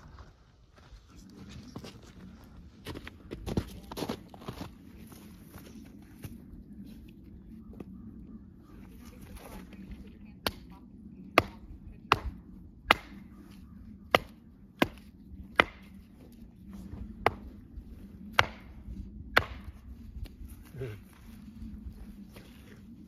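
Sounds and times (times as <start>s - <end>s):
hatchet chopping wood: 11.4s - 13.2s, 14.1s - 16.0s, 17.2s - 17.5s, 18.3s - 19.8s.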